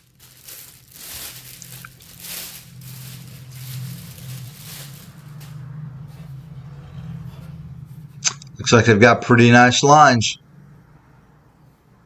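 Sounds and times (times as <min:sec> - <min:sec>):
plastic bag crinkling: 0:00.0 - 0:05.6.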